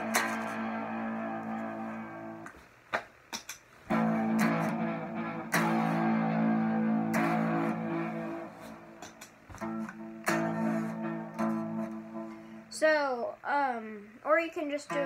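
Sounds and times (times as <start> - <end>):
electric guitar chords: 0.0 - 2.5, 3.9 - 12.7
guitar string clicks: 0.0 - 2.6, 3.3 - 12.4.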